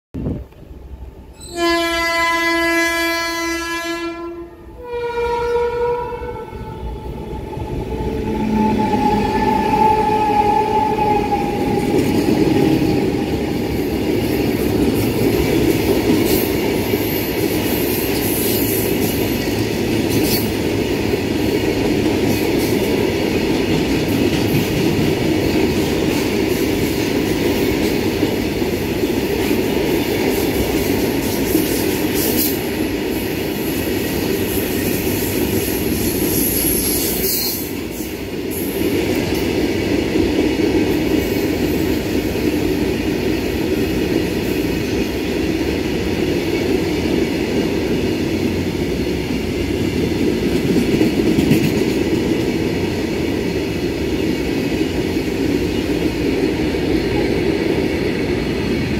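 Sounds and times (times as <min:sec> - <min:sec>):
locomotive horn blasts: 0:01.4 - 0:07.1.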